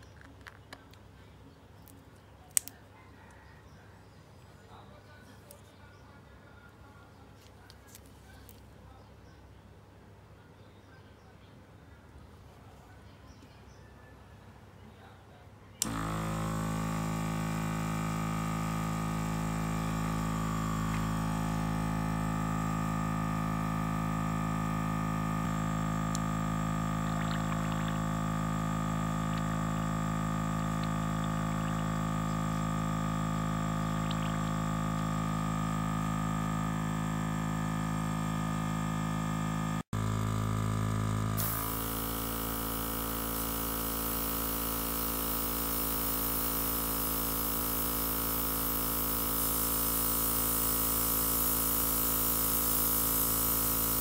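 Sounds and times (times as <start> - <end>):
electric compressor motor hum: 15.8 - 54.0
airbrush air spraying hiss: 41.4 - 54.0.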